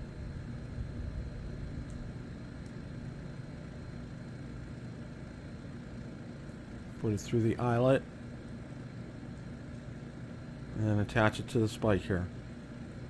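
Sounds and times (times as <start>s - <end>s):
low machine hum: 0.0s - 13.0s
faint light clicks: 1.8s - 2.0s.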